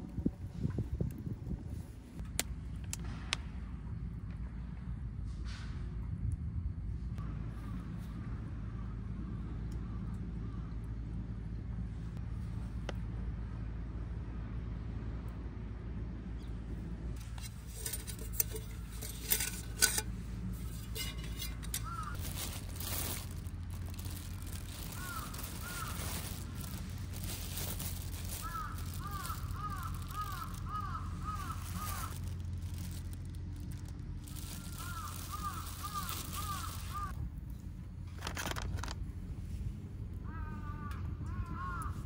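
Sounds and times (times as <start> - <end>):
steady low rumble: 0.0 - 42.0
crows cawing: 21.7 - 33.0, 34.3 - 37.2, 40.2 - 42.0.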